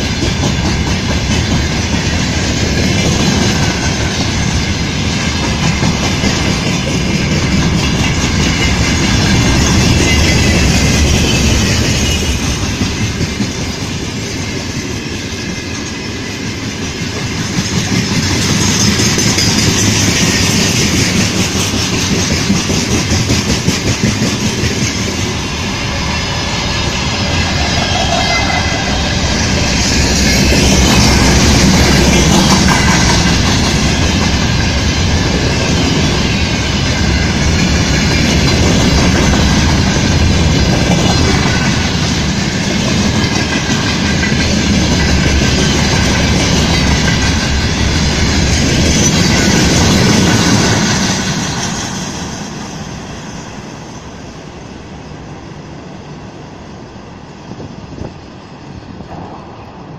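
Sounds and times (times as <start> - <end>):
steel wheels rumbling on rails: 0.0 - 59.9
wheels clattering over rail joints: 27.2 - 52.6.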